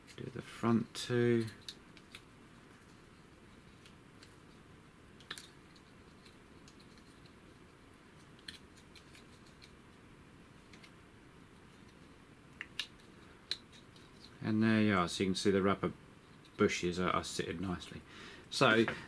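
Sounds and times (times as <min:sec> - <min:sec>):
low room hiss: 0:00.0 - 0:19.0
small clicks and ticks: 0:05.2 - 0:07.4.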